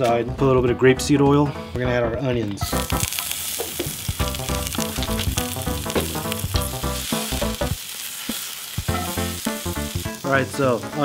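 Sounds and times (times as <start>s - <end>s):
background music: 0.0s - 7.9s, 8.8s - 11.0s
onions sizzling in a skillet: 2.6s - 11.0s.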